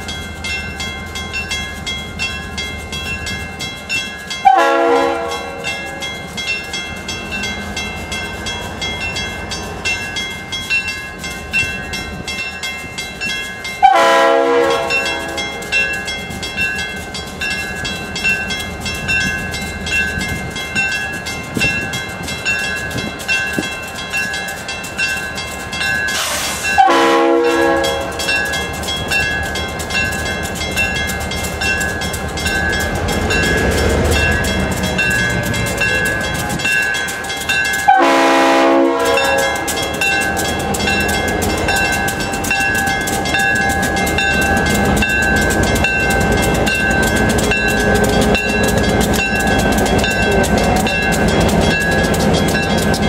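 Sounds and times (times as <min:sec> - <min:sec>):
diesel locomotives running: 0:00.0 - 0:53.0
train air horn blasts: 0:04.4 - 0:05.7, 0:13.8 - 0:15.7, 0:26.2 - 0:28.2, 0:37.9 - 0:39.8.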